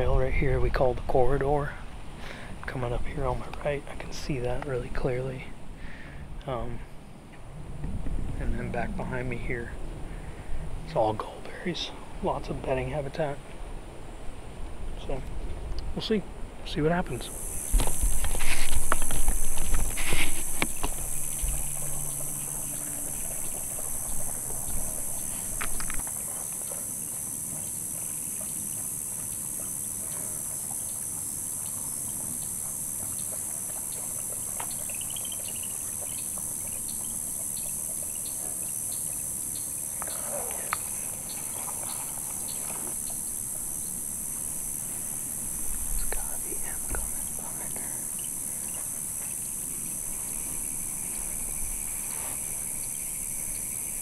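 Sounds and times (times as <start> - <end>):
insects droning: 0.0 - 54.0
deer splashing through water: 18.4 - 45.6.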